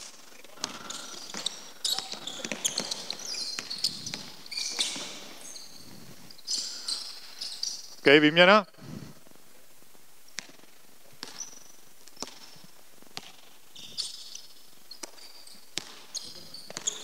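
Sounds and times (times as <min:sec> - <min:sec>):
basketball bouncing on wooden floor: 0:00.6 - 0:05.3, 0:15.8 - 0:17.0
sneaker squeaks: 0:00.6 - 0:08.0, 0:11.2 - 0:17.0.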